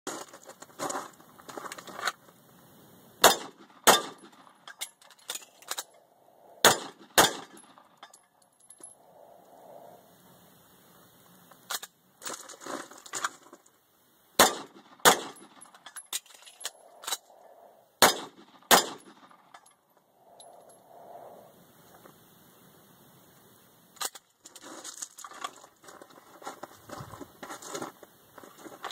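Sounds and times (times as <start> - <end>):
pistol shots: 3.2 - 4.4, 6.6 - 7.6, 14.4 - 15.6, 18.0 - 19.3.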